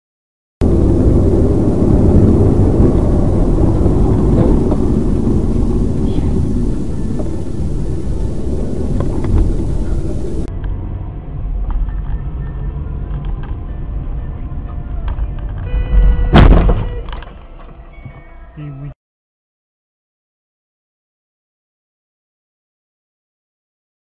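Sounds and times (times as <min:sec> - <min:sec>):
car road and engine rumble: 0:00.6 - 0:18.9.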